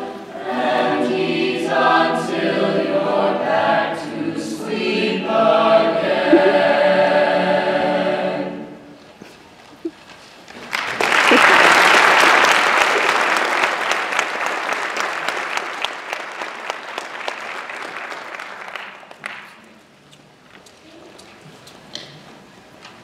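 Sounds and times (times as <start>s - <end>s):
audience applauding: 10.5s - 19.7s.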